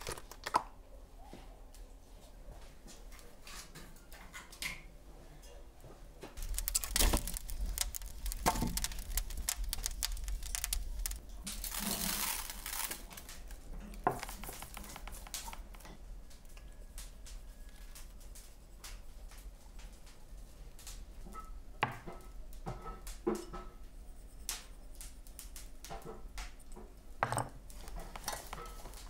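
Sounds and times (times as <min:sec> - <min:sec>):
logs crackling and popping: 0:00.0 - 0:00.7, 0:06.4 - 0:21.1, 0:27.6 - 0:29.0.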